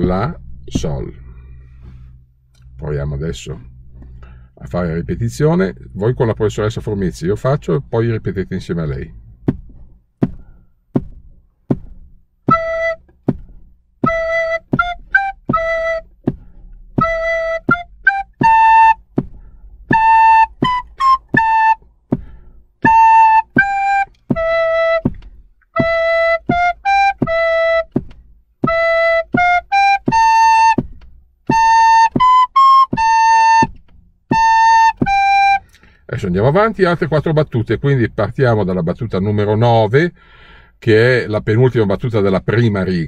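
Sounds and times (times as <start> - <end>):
recorders playing a melody: 12.0 - 13.4, 14.0 - 22.0, 22.8 - 37.4
metronome clicks: 22.8 - 35.8.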